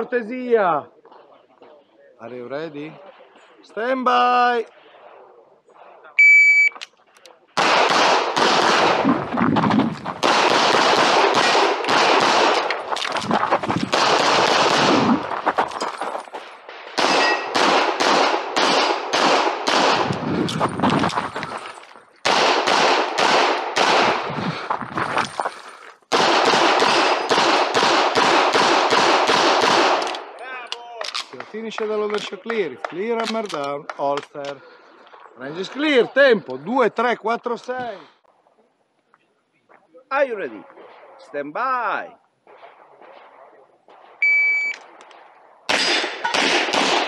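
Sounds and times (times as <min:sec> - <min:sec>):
pistol shots in fast strings: 0:07.6 - 0:09.5, 0:10.2 - 0:12.8, 0:13.9 - 0:15.2, 0:16.9 - 0:20.2, 0:22.2 - 0:24.3, 0:26.1 - 0:30.1, 0:45.7 - 0:47.0.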